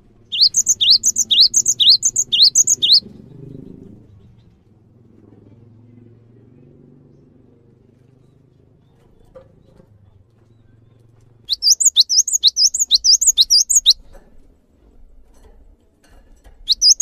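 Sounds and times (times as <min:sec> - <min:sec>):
bird singing whistled notes: 0:00.3 - 0:03.1, 0:11.5 - 0:14.0, 0:16.7 - 0:17.0.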